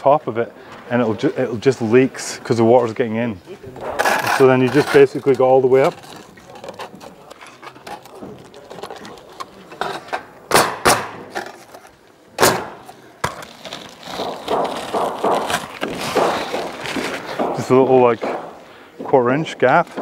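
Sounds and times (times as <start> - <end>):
hands rustling on shingles: 1.2 - 10.4, 12.6 - 20.0
nail gun shots: 10.5 - 11.3, 12.4 - 12.9.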